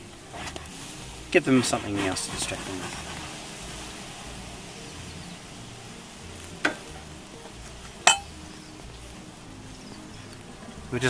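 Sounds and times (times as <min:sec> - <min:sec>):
honeybees buzzing: 0:00.0 - 0:11.0
steady hiss: 0:00.0 - 0:11.0.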